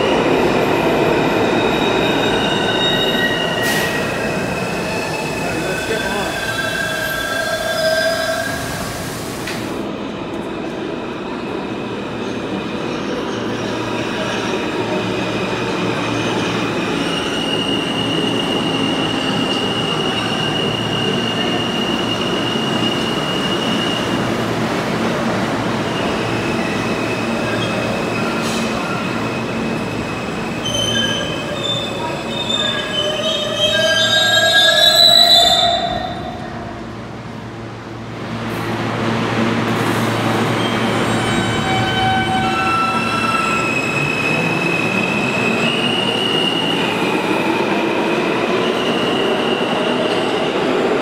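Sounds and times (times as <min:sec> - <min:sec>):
high wheel squeal: 0:01.6 - 0:09.0, 0:26.0 - 0:36.4, 0:40.6 - 0:47.1.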